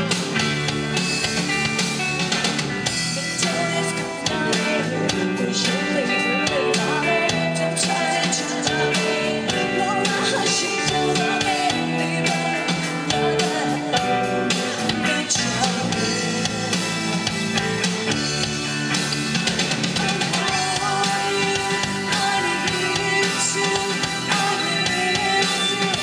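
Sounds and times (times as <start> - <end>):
drum kit: 0.0 - 26.0
guitar: 0.0 - 26.0
woman singing into microphone: 3.3 - 14.2, 14.8 - 16.5, 20.0 - 26.0.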